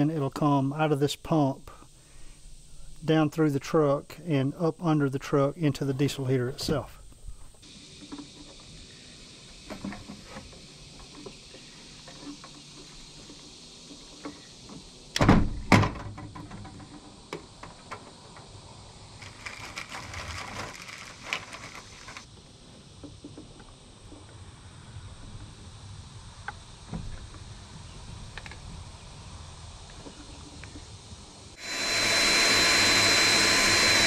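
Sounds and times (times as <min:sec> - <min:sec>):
scraping rustle: 0:19.2 - 0:22.3.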